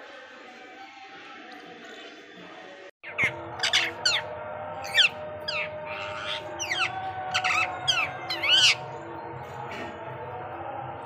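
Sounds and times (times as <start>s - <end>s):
parakeet squawking: 3.0s - 8.8s.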